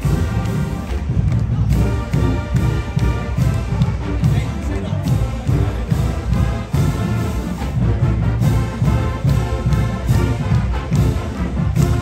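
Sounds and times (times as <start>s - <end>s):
marching band playing: 0.0s - 12.0s.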